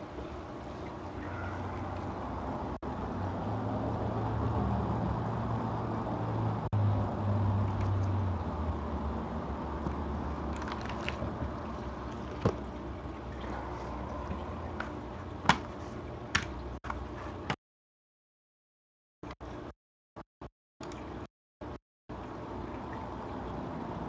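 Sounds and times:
low hum with hiss: 0.0 - 17.3.

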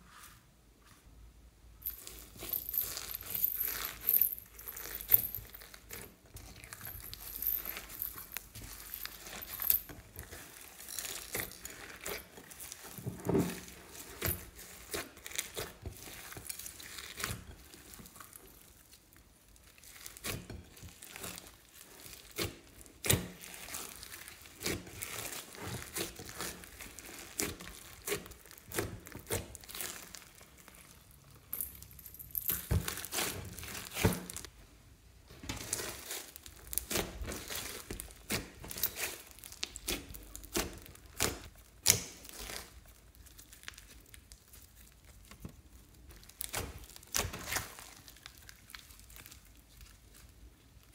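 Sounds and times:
slime squished by hand: 19.6 - 31.0, 35.6 - 50.9.

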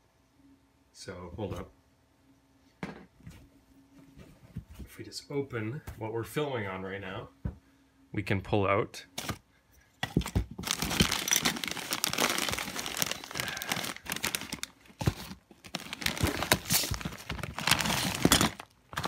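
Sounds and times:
plastic bags crinkling: 10.2 - 19.0.

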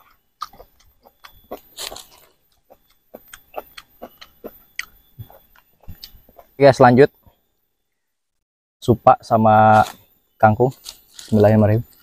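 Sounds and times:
mouth chewing food: 0.0 - 6.7.

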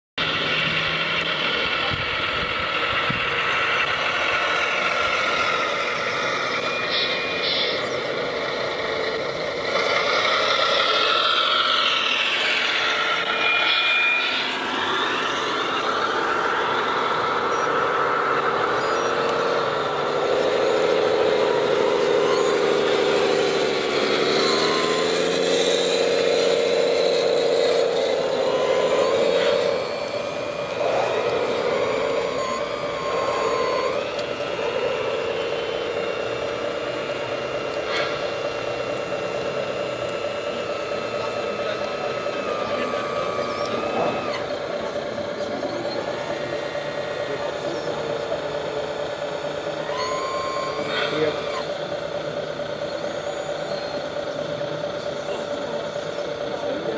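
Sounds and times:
model excavator mechanical whine: 0.2 - 56.9
short high beeps: 27.8 - 34.5.

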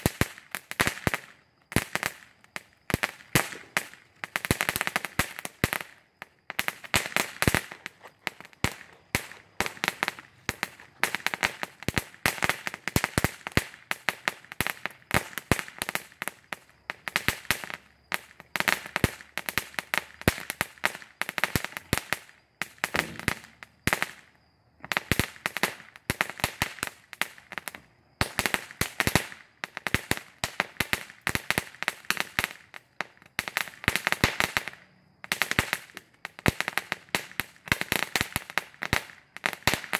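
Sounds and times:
ground firework crackling: 0.0 - 39.9.

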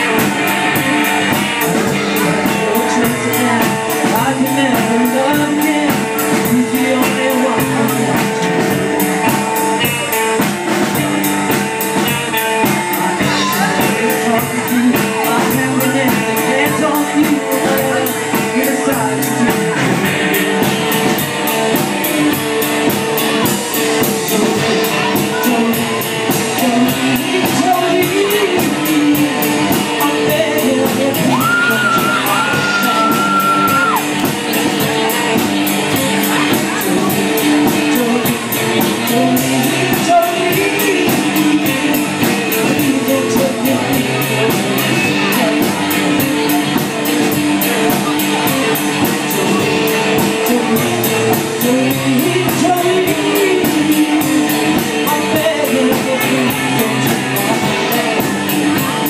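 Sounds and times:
acoustic guitar: 0.0 - 59.0
drum kit: 0.0 - 59.0
woman singing: 30.0 - 34.2.

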